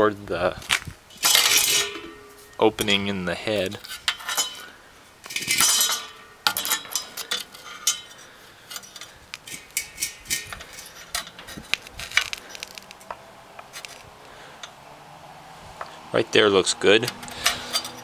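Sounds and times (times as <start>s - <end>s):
rasping metal scrape: 17.1s - 18.0s.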